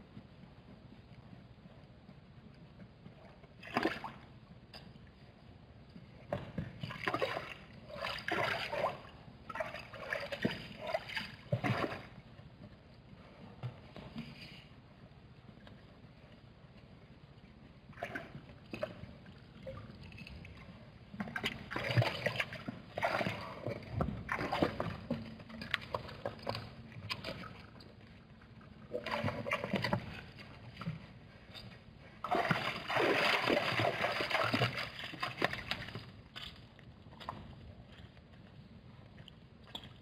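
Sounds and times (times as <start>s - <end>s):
water sloshing and splashing: 3.5s - 4.4s, 6.3s - 12.4s, 17.9s - 38.2s.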